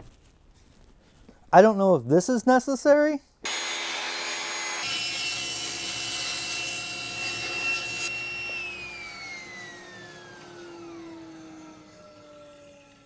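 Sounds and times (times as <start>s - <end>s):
saw motor winding down: 3.5s - 13.0s
table saw cutting plywood: 3.5s - 13.0s.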